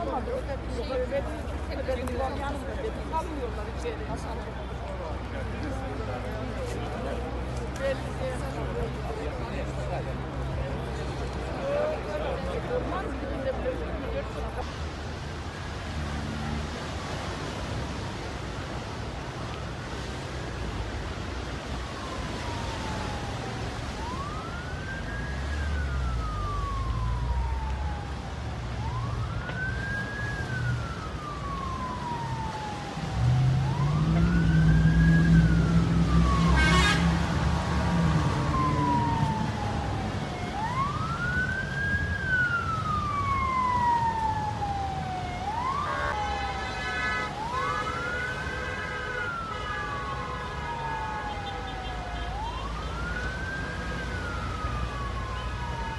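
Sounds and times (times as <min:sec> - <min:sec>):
emergency siren wailing: 0:16.2 - 0:55.9.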